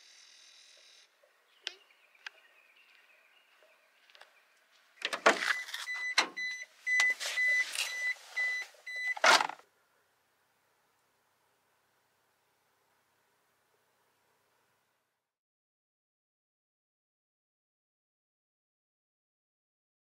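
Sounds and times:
clunks and rustling in van cab: 5.0s - 9.6s
van warning beeper beeping: 5.2s - 9.5s.

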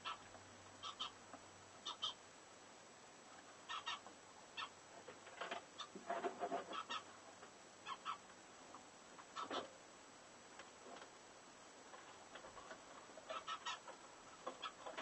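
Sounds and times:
bird chattering: 0.0s - 0.2s, 0.8s - 1.2s, 1.8s - 2.2s, 3.7s - 4.8s, 5.8s - 6.0s, 6.7s - 7.1s, 7.8s - 8.2s, 9.3s - 9.6s, 13.2s - 15.0s
lovebird chirping: 0.8s - 1.2s, 1.8s - 2.2s, 3.7s - 4.8s, 7.8s - 8.2s, 13.3s - 13.9s.

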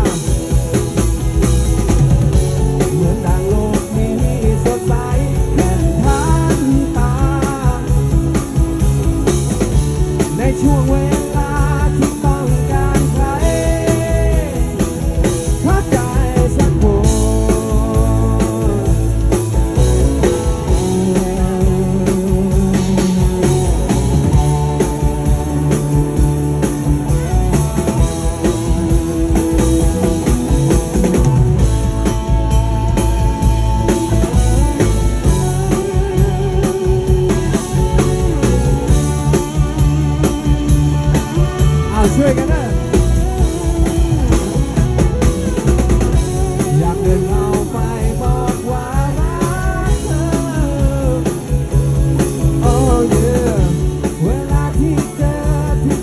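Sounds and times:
electric guitars: 0.0s - 56.0s
lead guitar line: 0.0s - 56.0s
steady low bass: 0.0s - 56.0s
man singing: 2.7s - 8.8s, 10.2s - 25.8s, 41.4s - 43.0s, 46.2s - 56.0s.

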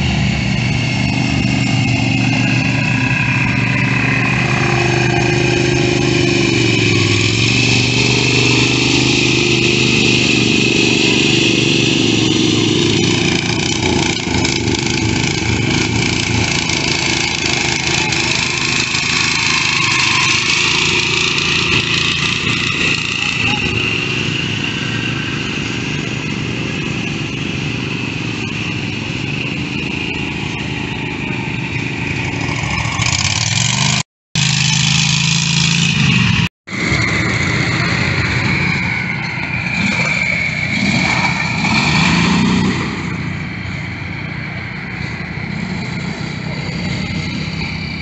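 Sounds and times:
mower churning through muddy water: 0.0s - 43.0s
small engines revving: 0.0s - 48.0s.

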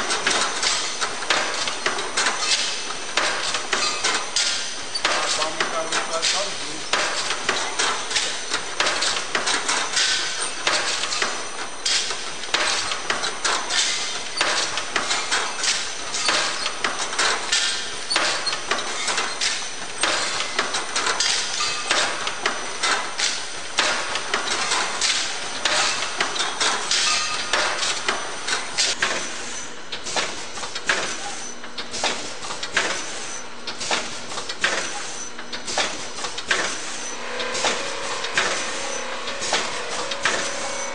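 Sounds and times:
packaging machine clattering: 0.0s - 29.0s.

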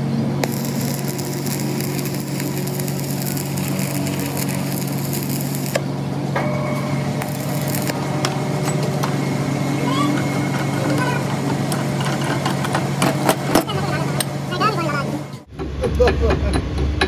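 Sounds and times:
low hum: 0.0s - 15.8s
welding arc crackling: 0.4s - 6.0s, 7.2s - 12.0s.

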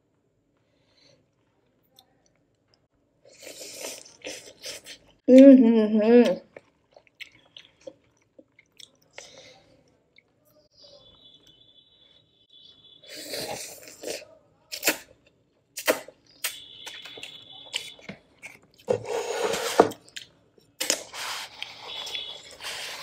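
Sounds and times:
chewing and wet mouth sounds: 6.2s - 10.6s, 13.5s - 18.9s, 19.9s - 23.0s.

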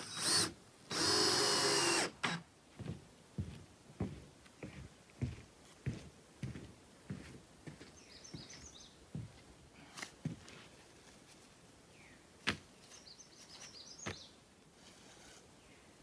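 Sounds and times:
footsteps on wooden platform: 2.7s - 9.5s, 10.2s - 10.7s
bird chirping: 7.9s - 9.0s, 12.8s - 14.4s.

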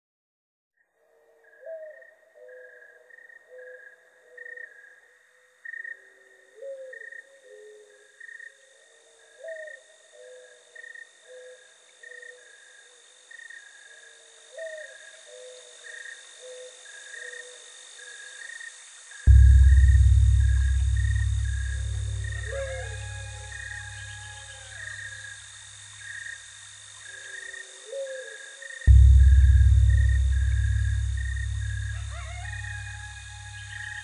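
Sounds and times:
slow instrumental music: 19.3s - 25.9s, 28.9s - 34.0s
steady high hum: 19.3s - 26.8s, 28.9s - 34.0s.

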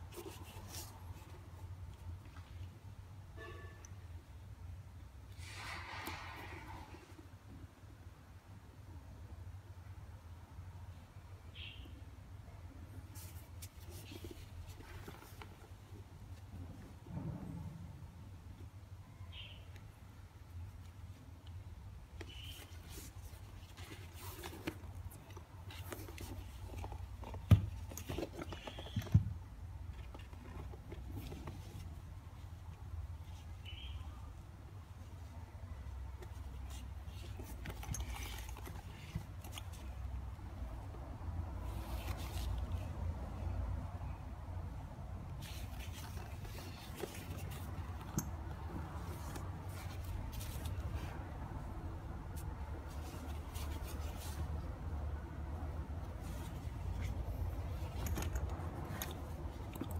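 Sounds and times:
bag rustling and scraping: 36.5s - 40.0s, 41.5s - 42.9s, 45.3s - 51.7s, 52.3s - 54.8s, 55.6s - 59.9s.

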